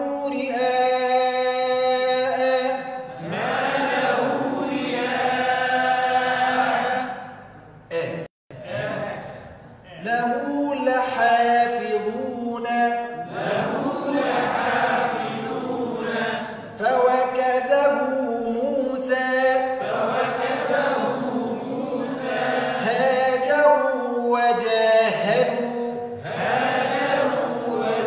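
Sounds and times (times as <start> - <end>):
man reciting with drawn-out vowels: 0.0 - 28.0
group chanting in unison: 3.0 - 7.5, 8.5 - 9.6, 12.0 - 16.8, 18.9 - 28.0.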